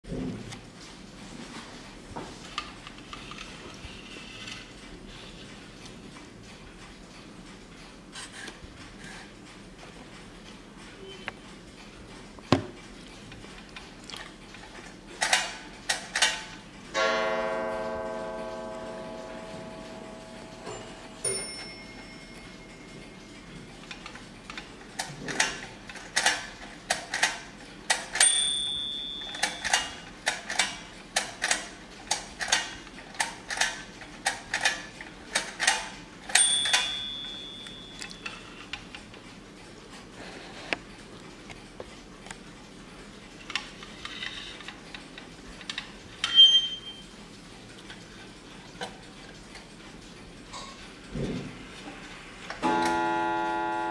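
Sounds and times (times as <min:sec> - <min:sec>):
bell ringing: 0:17.0 - 0:23.0, 0:28.2 - 0:29.7, 0:36.4 - 0:38.4.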